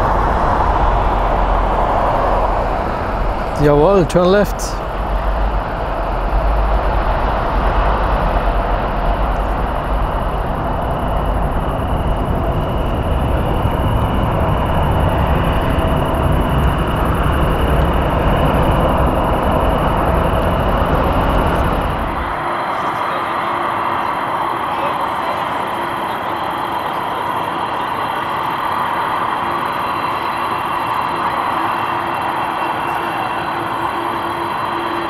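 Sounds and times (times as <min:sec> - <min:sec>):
jet engines at takeoff thrust: 0:00.0 - 0:35.0
thin steady engine whine: 0:00.0 - 0:35.0.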